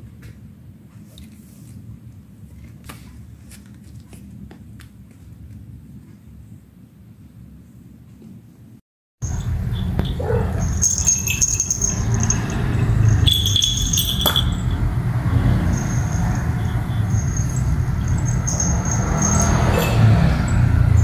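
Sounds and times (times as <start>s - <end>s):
steady low rumble: 9.2s - 19.4s
collar bell jingling: 9.2s - 21.0s.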